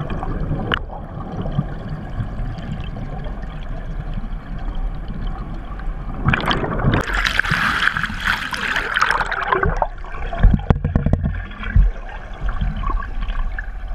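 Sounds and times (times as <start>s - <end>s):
bubbling and splashing rush: 0.0s - 13.9s
water gurgling underwater: 0.0s - 13.9s.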